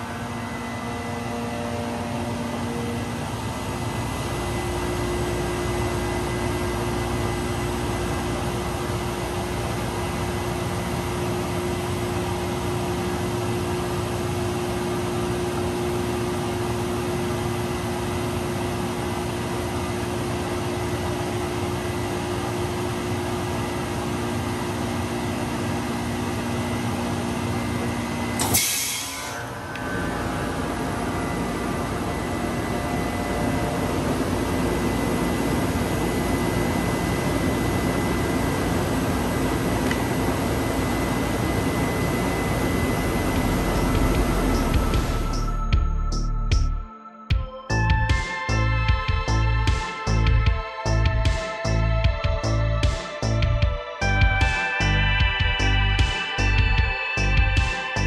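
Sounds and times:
heat pump humming: 0:00.0 - 0:45.5.

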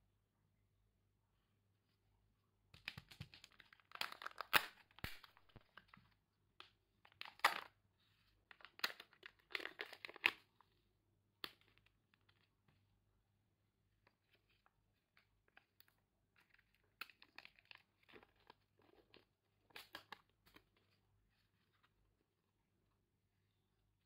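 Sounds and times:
plastic seals tearing: 0:02.8 - 0:05.9.

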